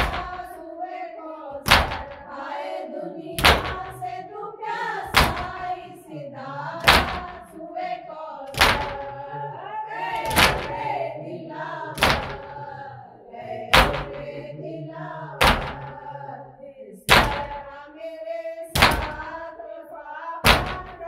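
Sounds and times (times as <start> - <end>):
hands beating on chests: 0.0 - 0.4, 1.6 - 2.2, 3.4 - 4.0, 5.1 - 5.7, 6.8 - 7.4, 8.5 - 9.2, 10.2 - 10.9, 12.0 - 12.6, 13.7 - 14.3, 15.4 - 16.0, 17.1 - 17.6, 18.8 - 19.4, 20.4 - 21.0
person singing a lament: 0.0 - 0.6, 5.1 - 7.6, 8.5 - 19.5.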